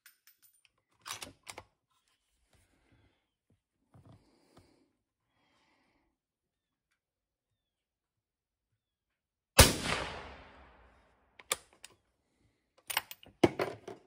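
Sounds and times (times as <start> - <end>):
suppressed rifle shot: 9.6 - 10.9.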